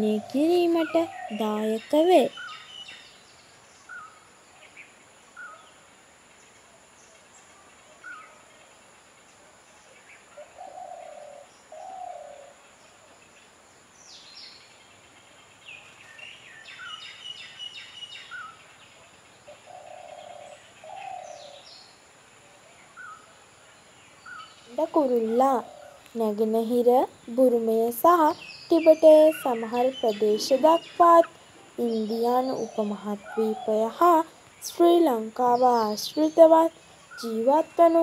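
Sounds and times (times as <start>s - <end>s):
low bird coos: 10.3s - 13.2s, 19.4s - 21.7s, 24.2s - 26.1s.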